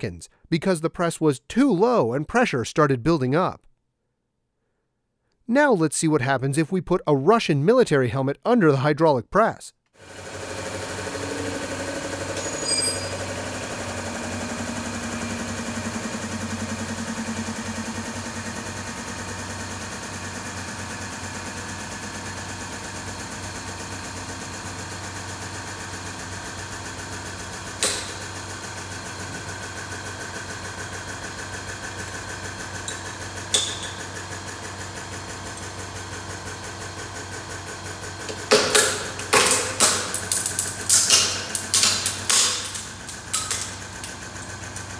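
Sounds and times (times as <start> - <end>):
hydraulic pump motor running: 10.0 - 44.9
steel helmet cracking: 38.4 - 44.2.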